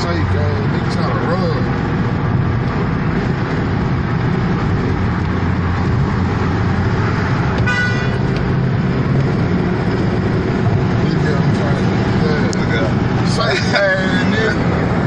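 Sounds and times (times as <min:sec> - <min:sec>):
car engine and road rumble: 0:00.0 - 0:15.0
car horn toot: 0:07.0 - 0:08.4.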